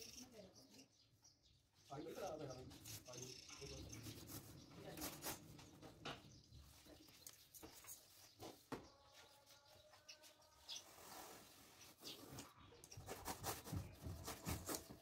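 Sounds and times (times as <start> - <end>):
knife cutting through foam: 13.1 - 15.0.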